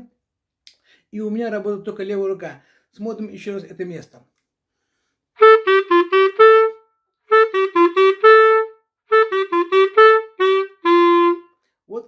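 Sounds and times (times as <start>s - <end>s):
clarinet playing short phrase: 5.4s - 11.5s.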